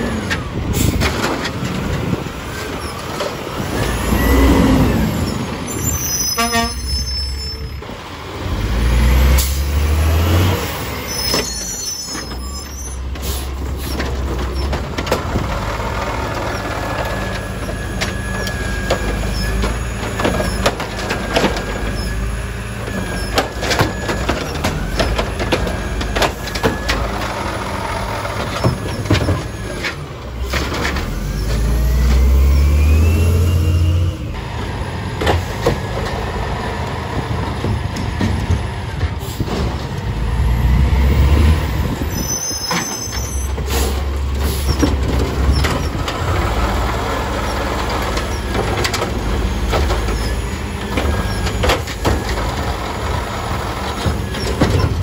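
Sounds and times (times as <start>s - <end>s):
garbage truck diesel engine revving: 0.0s - 6.2s, 7.8s - 11.7s, 13.0s - 55.0s.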